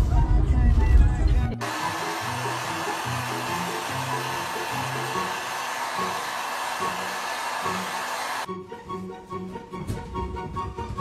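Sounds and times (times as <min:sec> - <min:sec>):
background music: 0:00.0 - 0:11.0
hair dryer blowing: 0:01.6 - 0:08.5.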